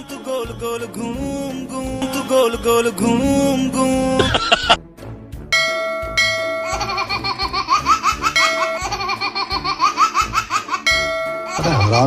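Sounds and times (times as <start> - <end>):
comic giggle sound effect: 4.2 - 4.8, 6.6 - 10.9, 11.5 - 12.0
bell-like chime: 10.9 - 11.6.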